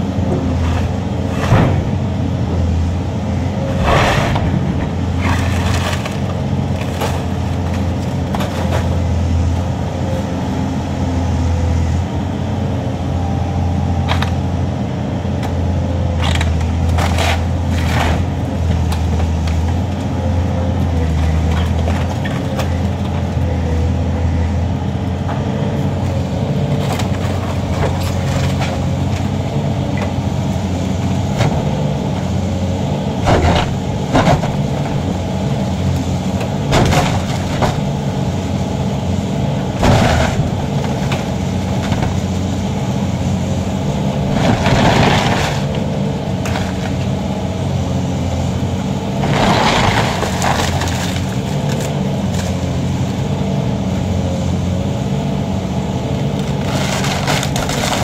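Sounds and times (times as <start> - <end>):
demolition machine engine running: 0.0 - 58.0
structure cracking and crashing: 3.8 - 9.0, 36.7 - 38.0, 39.7 - 42.3, 44.2 - 47.2, 49.1 - 52.7, 56.5 - 58.0.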